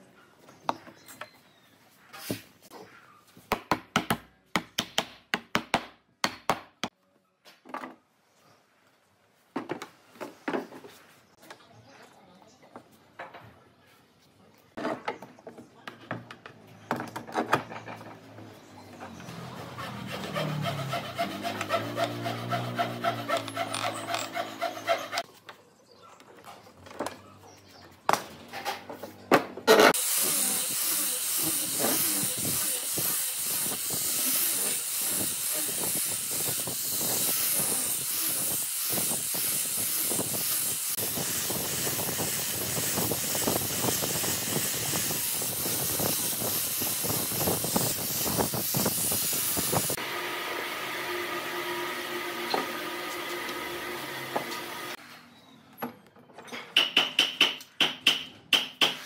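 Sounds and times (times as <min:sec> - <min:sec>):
grinder sanding wood: 0:19.3 - 0:25.2, 0:29.7 - 0:55.0.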